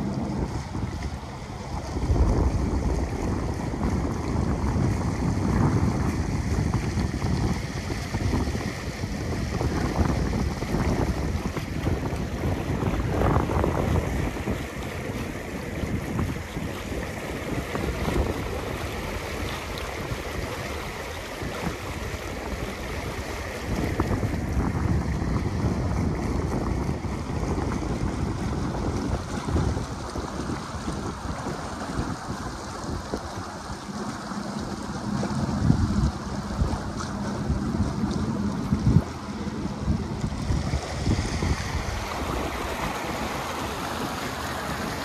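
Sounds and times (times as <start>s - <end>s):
water rushing along hull: 0.0s - 45.0s
wind buffeting microphone: 0.0s - 45.0s.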